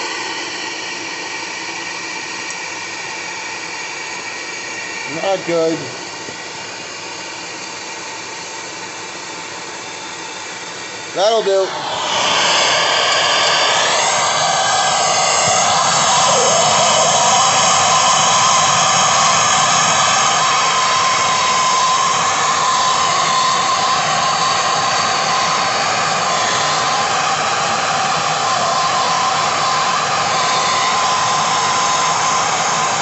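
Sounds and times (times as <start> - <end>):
gas torches hissing: 10.8 - 33.0.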